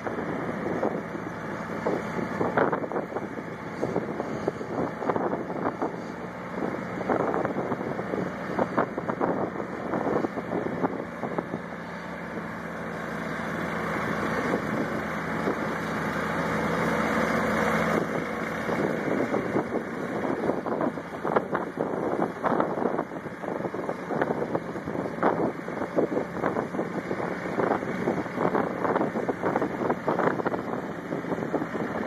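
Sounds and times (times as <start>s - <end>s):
boat engine running: 0.0s - 32.0s
wind buffeting microphone: 0.0s - 32.0s.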